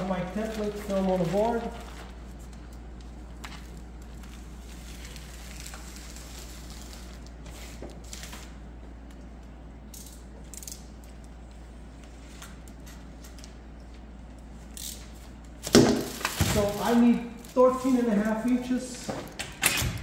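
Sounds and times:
plastic film rustling and crinkling: 0.0 - 8.7, 15.0 - 19.4
steady low hum: 0.0 - 20.0.

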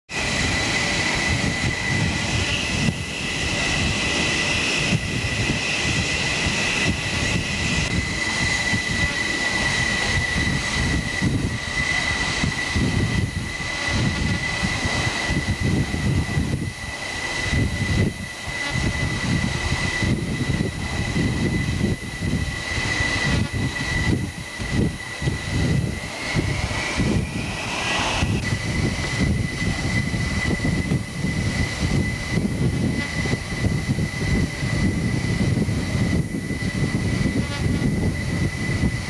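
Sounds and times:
higher jet whine: 0.1 - 39.0
jet engines whining and rumbling: 0.1 - 39.0.

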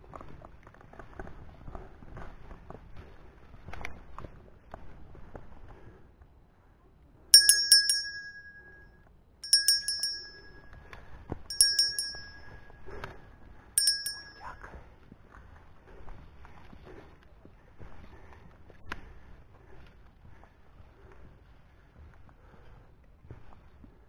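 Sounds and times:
small bell ringing: 7.4 - 8.8, 9.4 - 10.8, 11.5 - 13.1, 13.8 - 14.7.

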